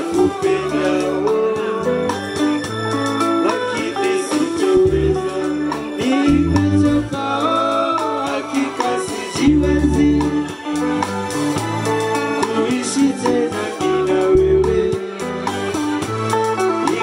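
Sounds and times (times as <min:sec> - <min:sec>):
men singing in unison: 0:00.0 - 0:02.4, 0:03.2 - 0:10.9, 0:12.1 - 0:15.3
trumpet: 0:00.0 - 0:02.6
saxophone: 0:00.0 - 0:07.6
drums: 0:00.0 - 0:17.0
guitar: 0:00.0 - 0:17.0
bass line: 0:04.7 - 0:07.3, 0:09.4 - 0:10.5, 0:14.3 - 0:15.0.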